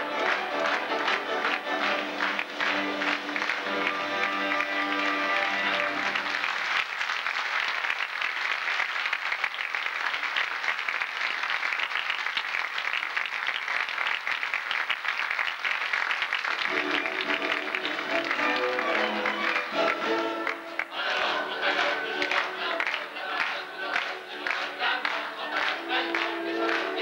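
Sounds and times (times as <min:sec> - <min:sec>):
stage dance music: 0:00.0 - 0:06.8, 0:16.4 - 0:27.0
audience clapping: 0:00.0 - 0:27.0.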